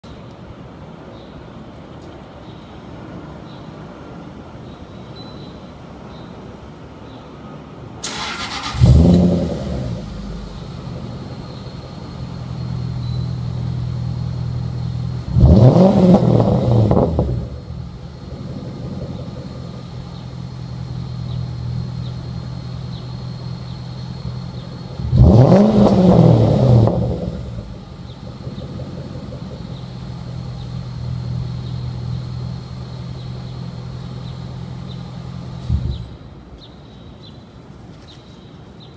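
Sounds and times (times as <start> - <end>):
engine revving: 8.1 - 11.5, 13.9 - 17.8, 25.0 - 33.2
car engine idling: 8.1 - 36.2.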